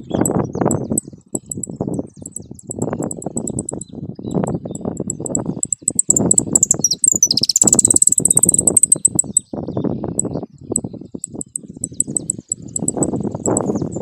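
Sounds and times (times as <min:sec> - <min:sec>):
finch singing high trill: 0:00.0 - 0:03.9, 0:05.0 - 0:09.4, 0:11.2 - 0:14.0
short high ticks: 0:00.7 - 0:03.8, 0:05.0 - 0:09.4, 0:11.2 - 0:13.7.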